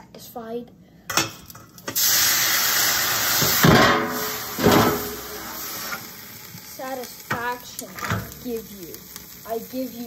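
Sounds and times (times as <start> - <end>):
hot pan hissing under tap water: 1.9 - 10.0.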